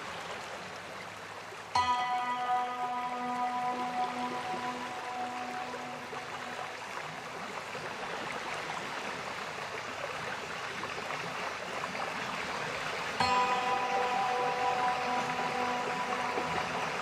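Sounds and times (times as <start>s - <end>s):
rushing stream water: 0.0s - 17.0s
low music note: 1.8s - 7.0s, 13.2s - 17.0s.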